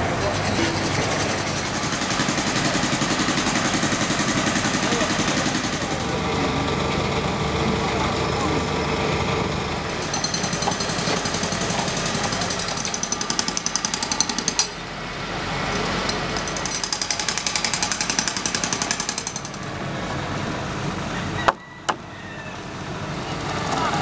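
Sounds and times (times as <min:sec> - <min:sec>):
construction site din: 0:00.0 - 0:24.0
power hammer hammering: 0:00.6 - 0:06.2, 0:09.9 - 0:14.8, 0:16.3 - 0:19.7.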